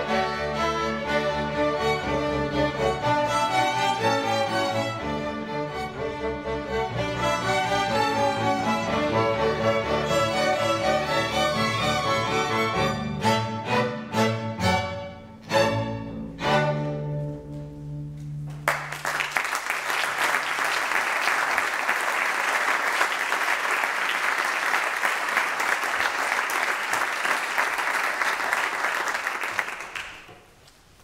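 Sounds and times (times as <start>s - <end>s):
string orchestra playing chords: 0.0s - 18.6s
audience applause: 18.5s - 30.4s.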